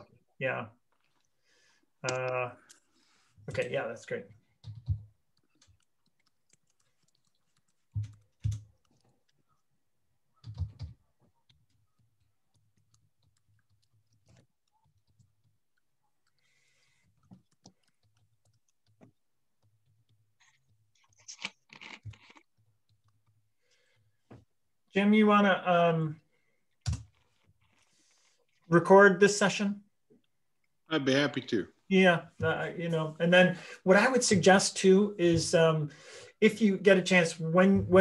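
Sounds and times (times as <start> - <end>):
typing on computer keyboard: 4.6 - 9.1, 10.4 - 20.2.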